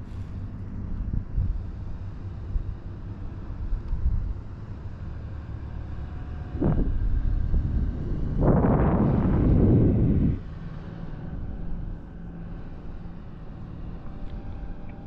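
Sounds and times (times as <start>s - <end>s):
wind rushing over microphone: 1.0s - 1.8s, 6.1s - 12.0s.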